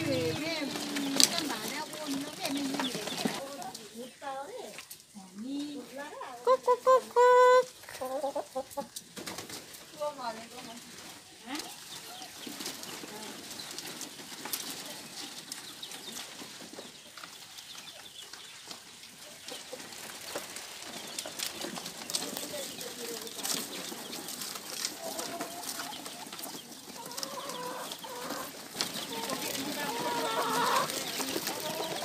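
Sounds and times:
scratching and rustling on straw: 0:00.0 - 0:06.7, 0:07.6 - 0:32.0
chickens clucking: 0:00.0 - 0:32.0.

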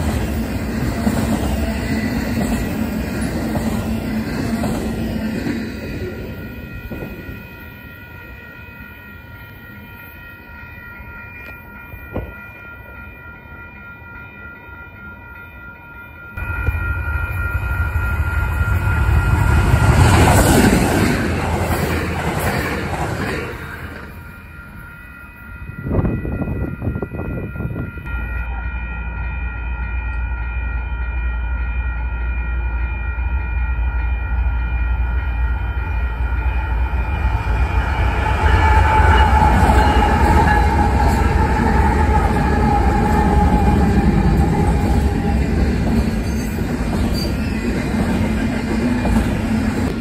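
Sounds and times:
train wheel and rail noise: 0:00.0 - 0:50.0
diesel locomotive engine rumble: 0:25.6 - 0:50.0.

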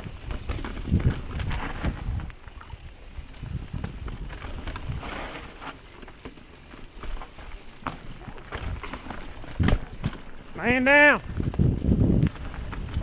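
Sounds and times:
wind buffeting microphone: 0:00.0 - 0:05.2, 0:08.5 - 0:13.0
bike rattling clicks: 0:00.0 - 0:13.0
tyres rumbling on dirt: 0:00.0 - 0:13.0.

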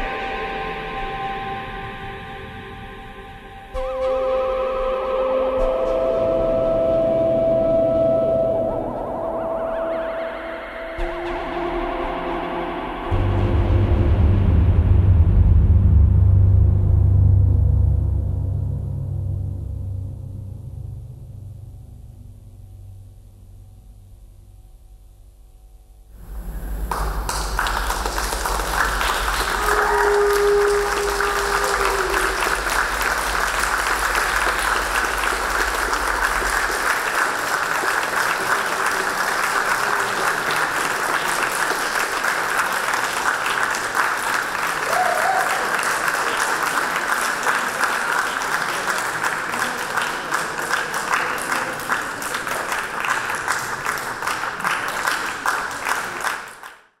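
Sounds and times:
audience applauding: 0:26.2 - 0:56.9.

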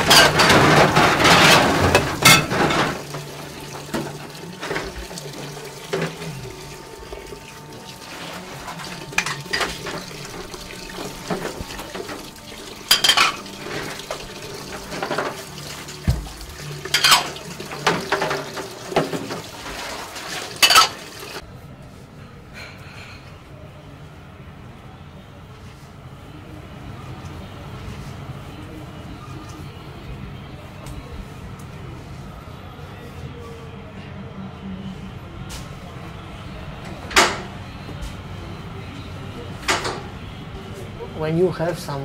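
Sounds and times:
crockery and pans clattering: 0:00.0 - 0:06.3, 0:08.0 - 0:21.4
water running: 0:00.0 - 0:21.4.

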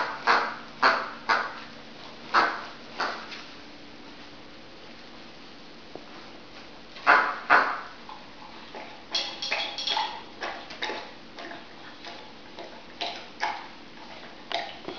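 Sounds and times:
dog claws clicking on tiles: 0:08.8 - 0:14.9.

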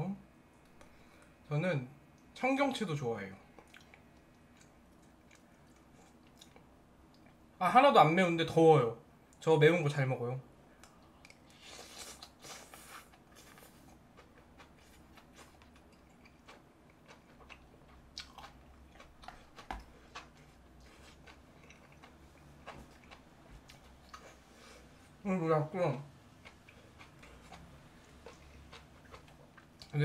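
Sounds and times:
chewing: 0:03.5 - 0:07.4, 0:10.8 - 0:24.8, 0:26.4 - 0:30.0.

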